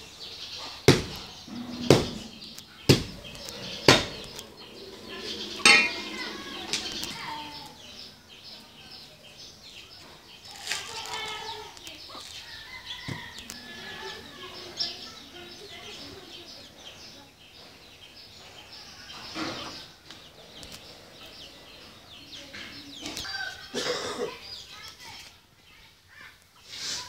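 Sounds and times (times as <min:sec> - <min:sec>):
machete chopping coconut husk: 0:00.9 - 0:01.2
ringing knock: 0:01.5 - 0:03.2, 0:05.4 - 0:06.8.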